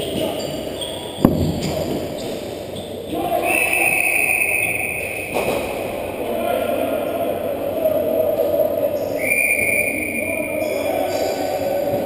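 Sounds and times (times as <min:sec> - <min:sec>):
referee's whistle blast: 0:03.4 - 0:05.5
background voices: 0:05.5 - 0:12.0.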